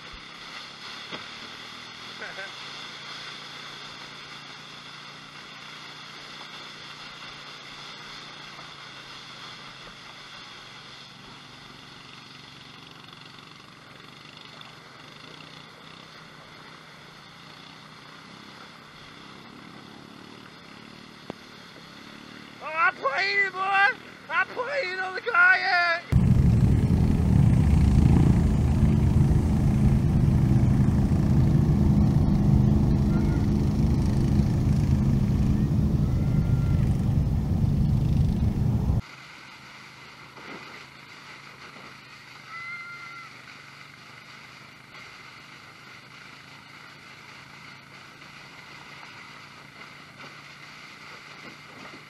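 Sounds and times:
loud low rushing rumble: 26.1s - 39.0s
steady hum: 26.1s - 39.0s.

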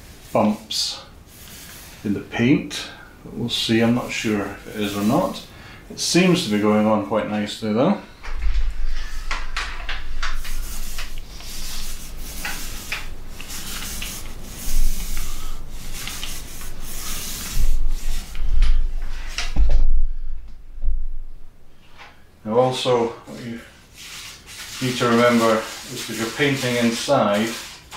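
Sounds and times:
paint roller swishing: 0.0s - 2.2s, 3.5s - 5.5s, 8.7s - 19.5s, 23.3s - 27.9s
low bumps: 16.6s - 21.7s.

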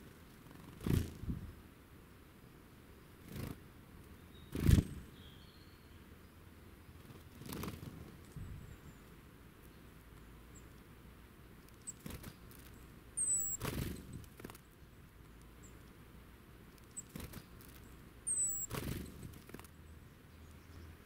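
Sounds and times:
bird wings fluttering: 0.3s - 1.4s, 3.2s - 3.6s, 4.5s - 5.0s, 7.0s - 8.5s, 11.7s - 12.8s, 13.4s - 14.7s, 16.7s - 19.8s
thin high bird chirps: 11.6s - 15.9s, 16.7s - 21.0s.

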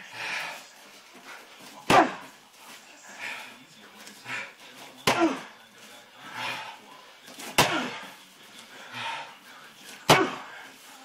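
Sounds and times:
kick smacking kick shield: 10.1s - 10.4s.

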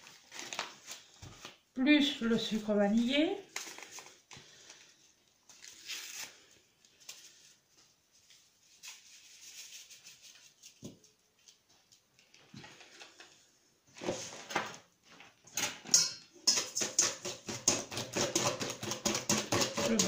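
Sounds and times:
paper sachet crinkling: 3.4s - 4.8s, 8.2s - 11.6s.

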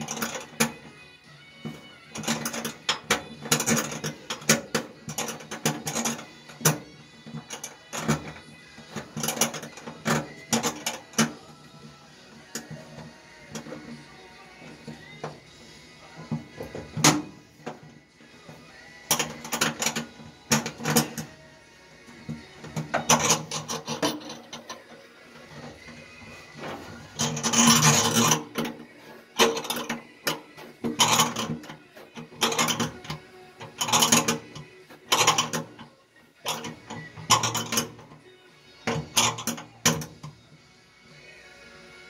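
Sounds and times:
metallic scraping: 12.3s - 21.5s, 22.1s - 40.3s.

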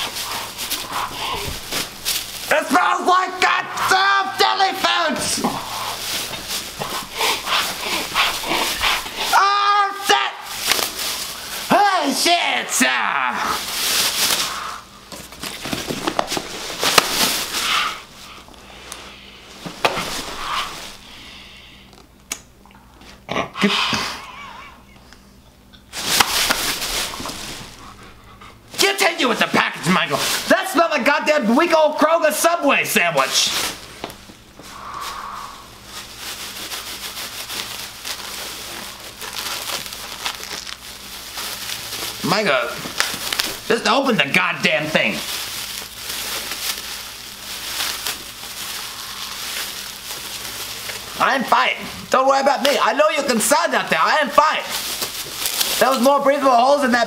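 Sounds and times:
plastic and paper crinkling: 0.0s - 21.1s, 25.9s - 57.0s
sharp crackles: 34.6s - 51.5s, 54.3s - 56.2s.

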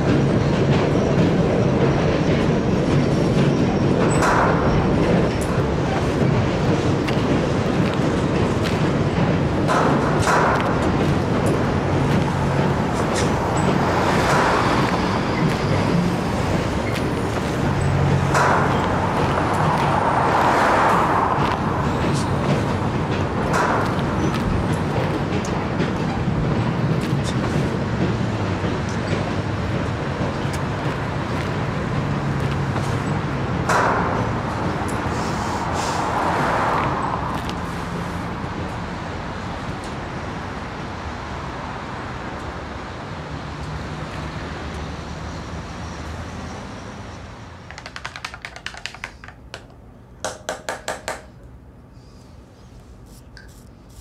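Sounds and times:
traffic rumble: 0.0s - 54.0s
rapid clicking: 47.6s - 49.8s.

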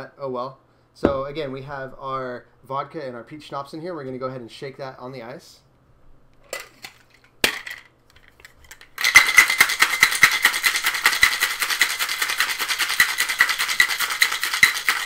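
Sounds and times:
knock: 1.0s - 1.6s
ice rattling in cocktail shaker: 8.7s - 15.0s.

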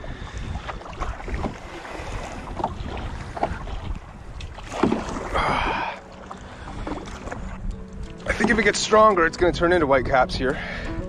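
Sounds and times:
small waves splashing: 0.0s - 9.2s
paddle strokes splashing: 0.0s - 9.3s
rush of water: 0.0s - 9.3s
wind buffeting microphone: 0.0s - 11.0s.

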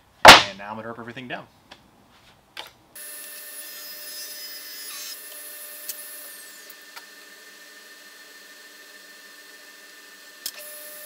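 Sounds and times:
table saw cutting board: 3.0s - 7.2s.

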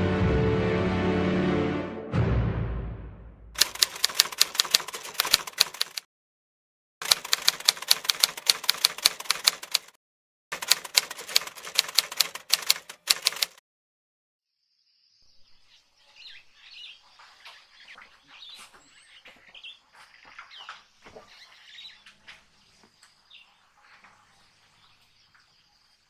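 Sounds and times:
typewriter key clicks: 7.0s - 9.9s, 10.6s - 13.6s.

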